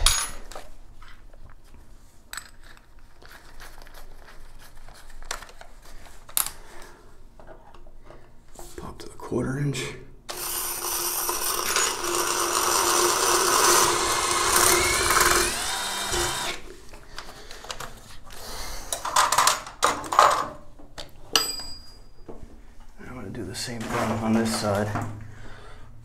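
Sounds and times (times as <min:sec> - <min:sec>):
drill boring into tile: 0:10.3 - 0:16.7.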